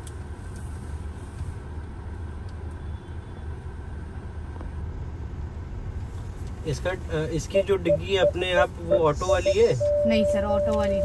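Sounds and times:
car cabin rumble: 0:07.5 - 0:11.0.

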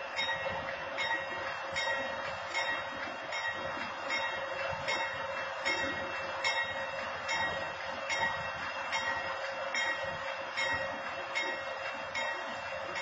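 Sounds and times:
diesel locomotive running: 0:00.0 - 0:13.0.

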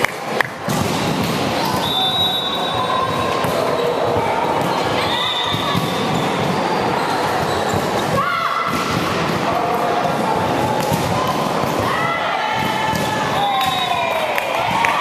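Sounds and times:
court noise: 0:00.0 - 0:15.0
high shoe squeaks: 0:01.6 - 0:08.2.

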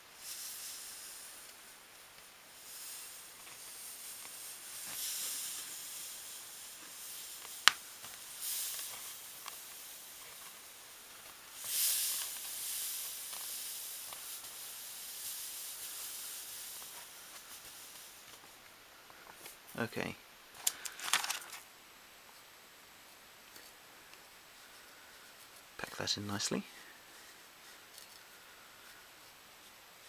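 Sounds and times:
powder pouring hiss: 0:00.0 - 0:30.0.

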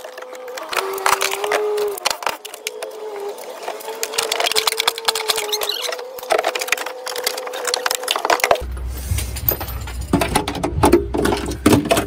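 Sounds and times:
plastic connectors clicking: 0:00.0 - 0:08.6.

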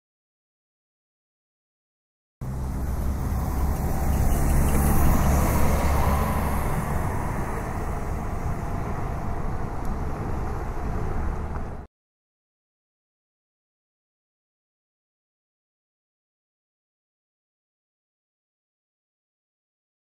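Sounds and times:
road traffic rumble: 0:02.4 - 0:11.9.

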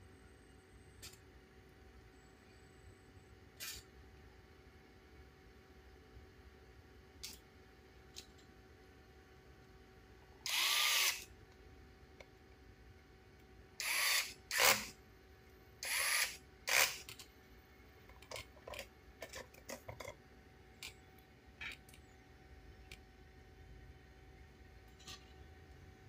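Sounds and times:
electric screwdriver whirring: 0:10.5 - 0:11.2, 0:13.8 - 0:14.9, 0:15.8 - 0:17.1.

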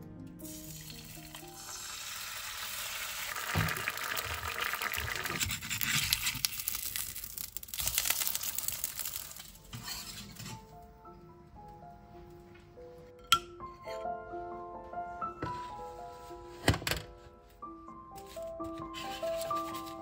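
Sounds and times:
egg sizzling in a pan: 0:00.4 - 0:10.1
spatula scraping a pan: 0:05.1 - 0:06.5, 0:09.7 - 0:10.7.

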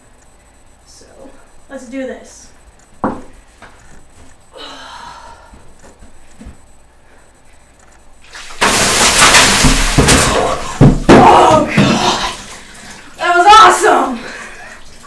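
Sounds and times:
water and ice splashing: 0:08.2 - 0:15.0.

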